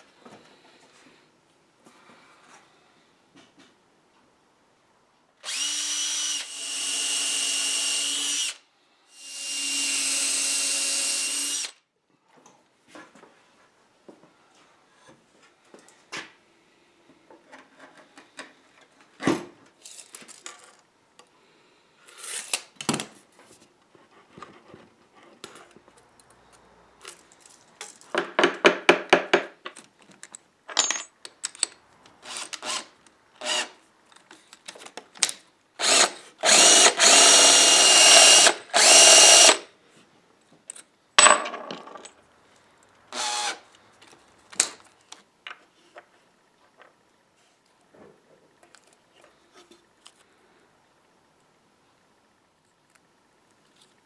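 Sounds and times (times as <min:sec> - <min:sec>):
drill boring through wood: 0:05.4 - 0:11.8, 0:32.3 - 0:33.7, 0:35.8 - 0:39.7, 0:43.1 - 0:43.6
tools and wood knocking: 0:28.1 - 0:29.8.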